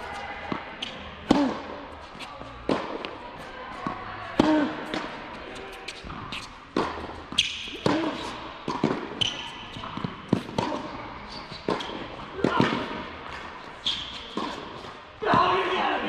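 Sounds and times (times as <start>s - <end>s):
rackets striking tennis ball: 0.4s - 15.8s
ball bouncing: 3.8s - 14.7s.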